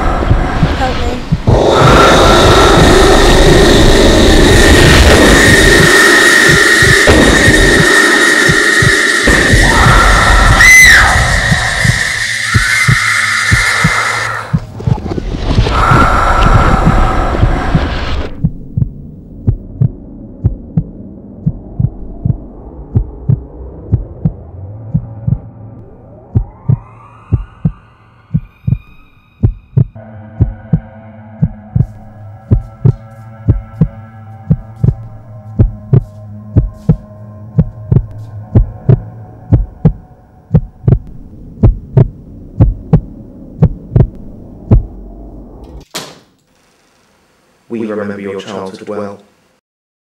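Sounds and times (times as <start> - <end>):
heartbeat thumps: 0.0 - 45.0
steady low hum: 0.0 - 45.8.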